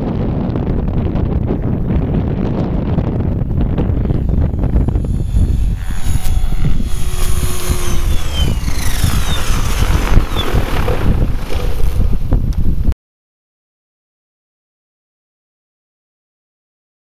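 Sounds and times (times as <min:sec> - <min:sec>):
wind buffeting on microphone: 0:00.0 - 0:13.0
rc helicopter rotor and motor whine: 0:02.2 - 0:12.9.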